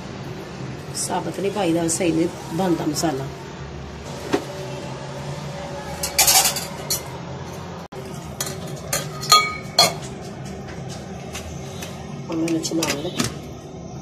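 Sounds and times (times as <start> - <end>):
glass blender jar clinking: 8.9 - 10.0.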